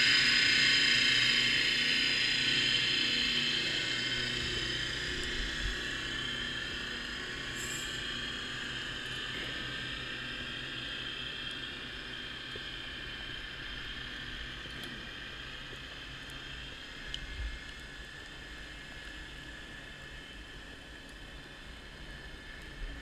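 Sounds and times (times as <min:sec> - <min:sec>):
low hum: 0:00.0 - 0:23.0
underwater hiss: 0:07.4 - 0:08.3
faint ticks: 0:17.0 - 0:18.4.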